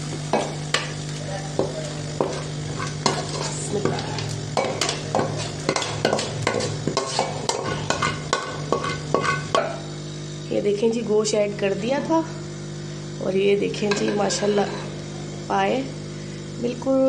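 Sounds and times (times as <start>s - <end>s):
steady low hum: 0.0s - 17.0s
metal spoon scraping steel pan: 2.2s - 9.7s, 13.8s - 15.0s.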